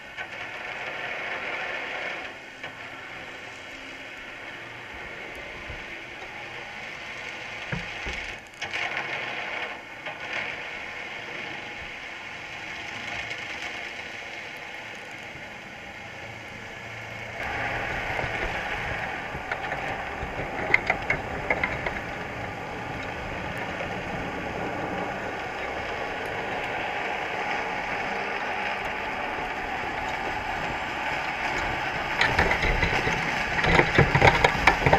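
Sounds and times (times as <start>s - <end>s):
crabs clicking on wire mesh: 17.4s - 24.5s, 27.8s - 34.9s.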